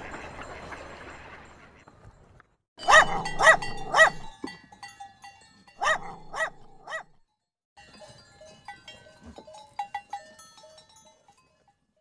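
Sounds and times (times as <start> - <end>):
small dog yapping: 2.9 - 4.3, 5.8 - 7.1.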